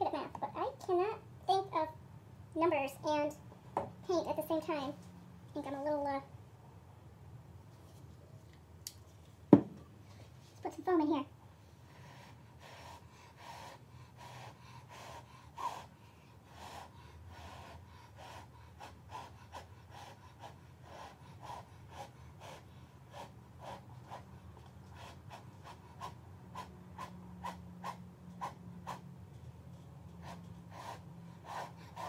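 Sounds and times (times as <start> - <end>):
person blowing puffs of breath: 11.8 - 24.2, 24.9 - 29.0, 30.2 - 32.0.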